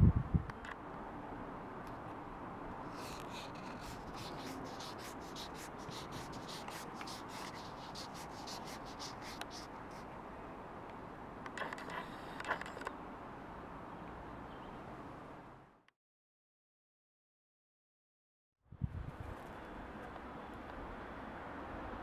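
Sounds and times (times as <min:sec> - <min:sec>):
steady low hiss: 0:00.0 - 0:14.2
short scratchy rubbing sounds: 0:02.9 - 0:10.1, 0:11.6 - 0:12.9.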